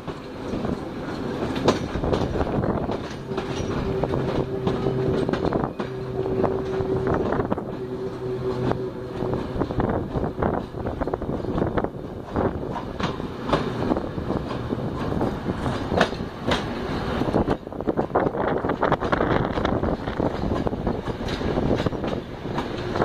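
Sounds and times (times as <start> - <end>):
steady low tone: 0.0 - 17.4
train rumble: 0.0 - 23.0
train wheels clicking over rail joints: 0.0 - 23.0.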